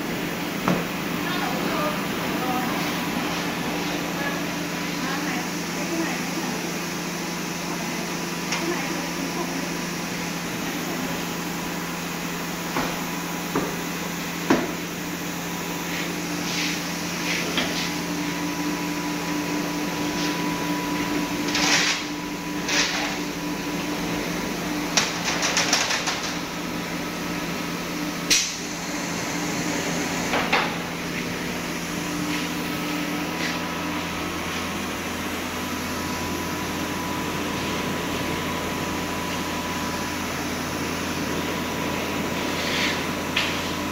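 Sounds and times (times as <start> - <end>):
packaging machine humming: 0.0 - 43.9
clicks and knocks of trays: 25.0 - 26.4.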